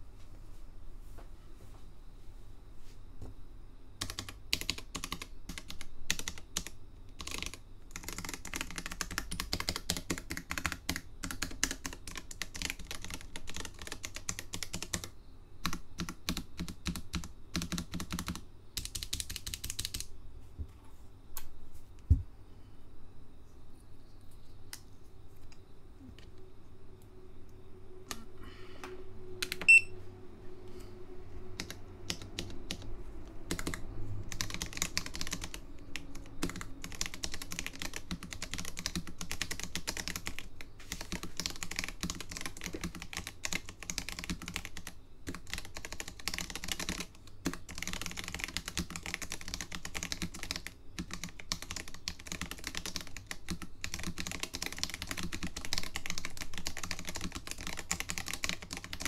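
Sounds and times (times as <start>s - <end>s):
keyboard typing: 4.0s - 20.1s, 29.4s - 29.9s, 31.6s - 59.0s.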